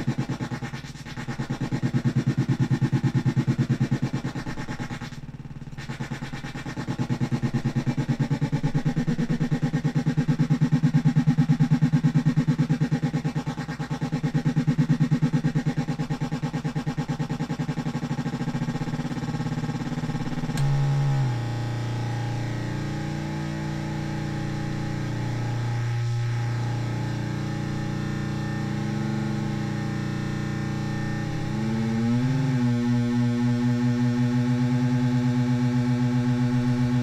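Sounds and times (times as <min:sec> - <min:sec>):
harsh pulsing synthesizer buzz: 0:00.0 - 0:37.0.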